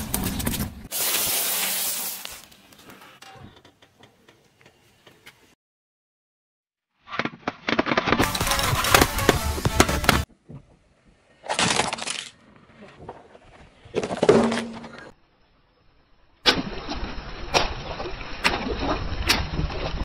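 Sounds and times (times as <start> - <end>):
splashing water hiss: 0.9 - 2.5
plastic toy cracking under tyre: 7.0 - 9.4, 11.5 - 12.4.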